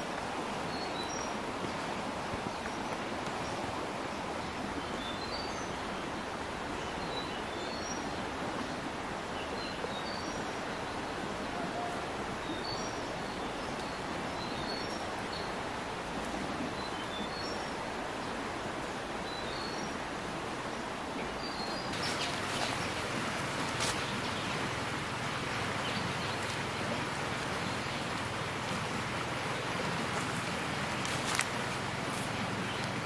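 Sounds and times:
steady forest hiss: 0.0s - 33.0s
small birds chirping: 21.2s - 33.0s.

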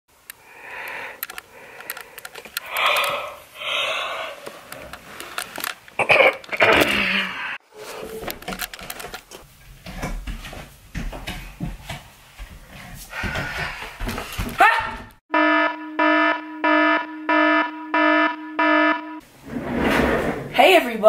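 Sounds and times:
person breathing heavily: 0.4s - 4.7s, 6.8s - 7.6s, 13.0s - 14.4s.

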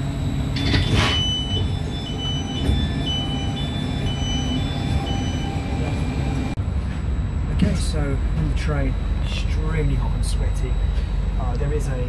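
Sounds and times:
train engine rumble: 0.0s - 12.0s
two-tone warning beeps: 0.6s - 6.4s.

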